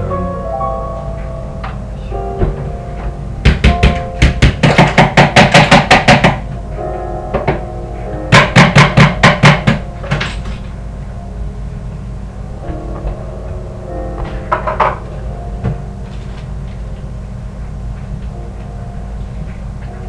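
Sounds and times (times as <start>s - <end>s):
classical piano music: 0.0s - 17.2s
rapid sharp knocking: 3.4s - 6.4s, 8.3s - 9.8s.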